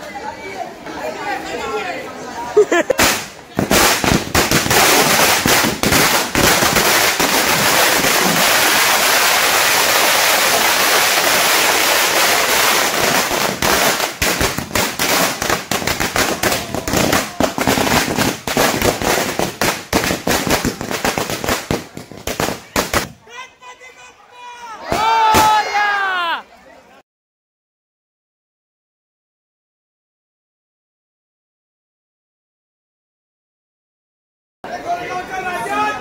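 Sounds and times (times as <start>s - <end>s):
firecrackers bursting: 2.8s - 23.2s.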